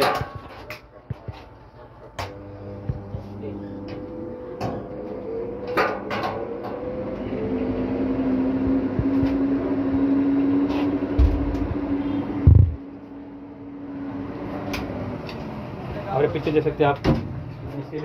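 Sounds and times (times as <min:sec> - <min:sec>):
machine hum: 0:00.0 - 0:16.6
low thumps: 0:11.2 - 0:12.8.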